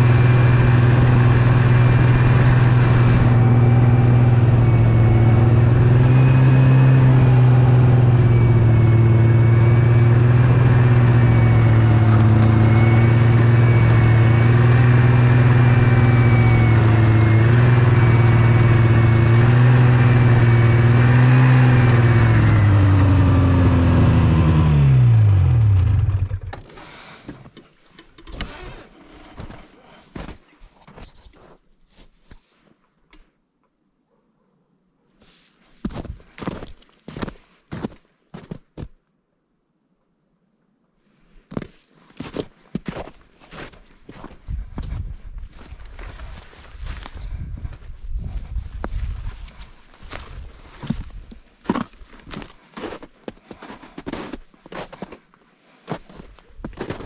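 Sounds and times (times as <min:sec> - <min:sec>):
snowmobile engine running: 0:00.0 - 0:26.9.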